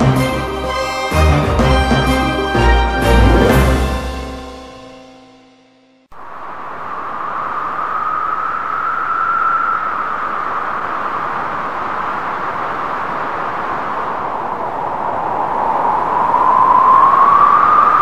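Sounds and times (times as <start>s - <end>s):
steady rushing noise: 6.1s - 18.0s.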